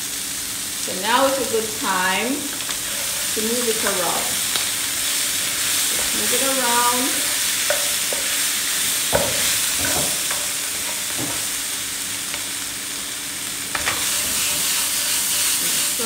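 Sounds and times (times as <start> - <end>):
shrimp sizzling in a pan: 0.0 - 16.0
wooden spoon knocking and scraping pan: 5.4 - 6.4, 7.1 - 8.4, 9.1 - 11.5, 13.7 - 16.0.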